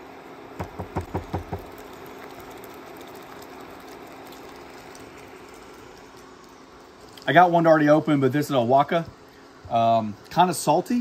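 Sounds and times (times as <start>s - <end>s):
induction cooktop humming: 0.0s - 11.0s
utensil knocking on steel pan: 0.6s - 1.6s.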